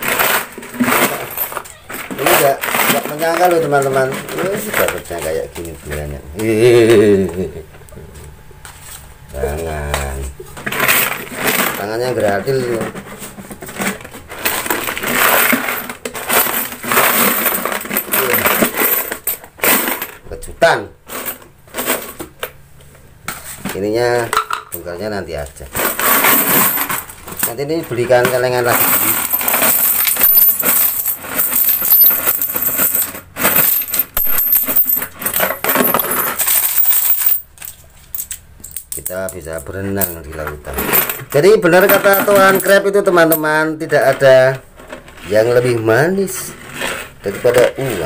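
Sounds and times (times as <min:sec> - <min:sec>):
coins clinking: 0:00.0 - 0:07.2, 0:10.0 - 0:20.2, 0:25.7 - 0:45.8.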